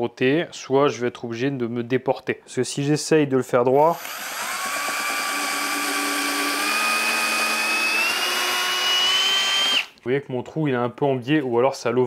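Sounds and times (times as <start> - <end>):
cordless drill drilling into wood: 3.8 - 10.0.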